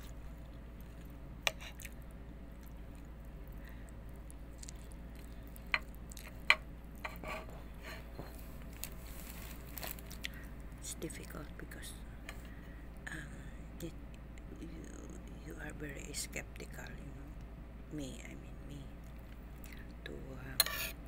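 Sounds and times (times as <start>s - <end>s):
person chewing: 0.0s - 7.0s, 8.6s - 10.6s
steady low hum: 0.0s - 21.0s.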